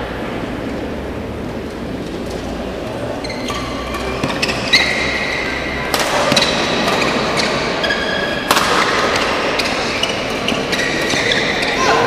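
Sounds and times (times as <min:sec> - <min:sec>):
shoes squeaking on court: 0:03.1 - 0:08.4, 0:09.1 - 0:12.0
racket striking shuttlecock: 0:05.9 - 0:07.7, 0:08.4 - 0:11.8.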